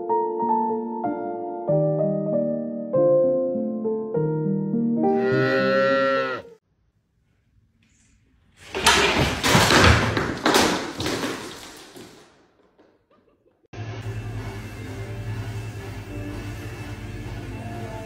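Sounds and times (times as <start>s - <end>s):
objects crashing onto hard floor: 8.6s - 13.0s.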